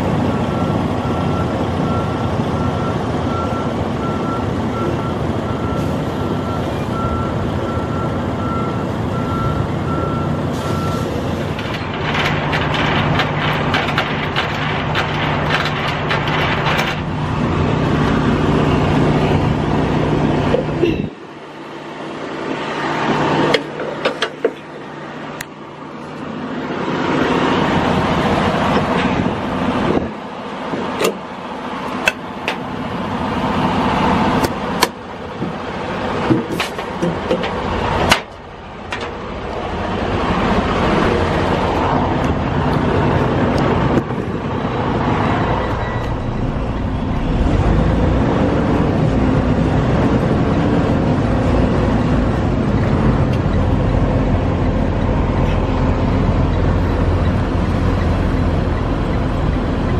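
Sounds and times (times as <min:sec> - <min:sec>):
diesel truck engine running: 0:00.0 - 0:59.9
reversing alarm beeping: 0:00.5 - 0:11.1, 0:45.5 - 0:47.6
metallic clicks and clanks: 0:11.4 - 0:17.2.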